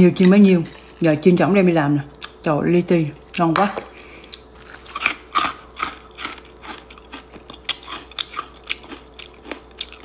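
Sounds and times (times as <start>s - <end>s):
person chewing crispy fish: 3.2s - 10.0s.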